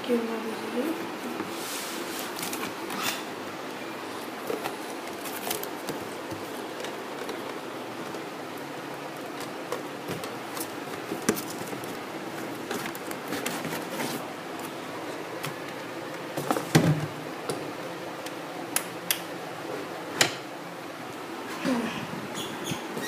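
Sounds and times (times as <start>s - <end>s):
cardboard box being handled: 9.5s - 14.8s.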